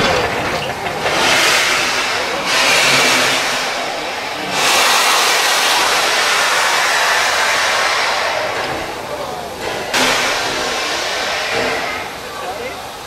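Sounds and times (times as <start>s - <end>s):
steam locomotive hissing: 0.0s - 13.0s.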